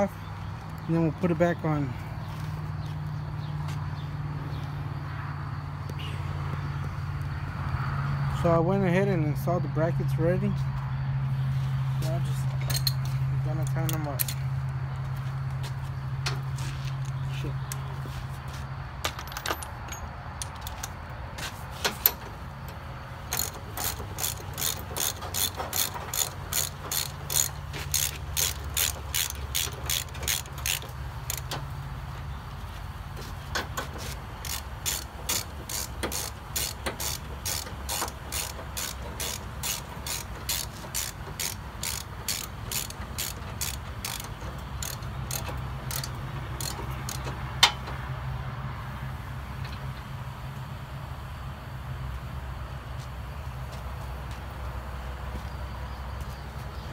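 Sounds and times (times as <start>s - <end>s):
ratchet wrench clicking: 23.3s - 31.7s, 33.8s - 47.8s.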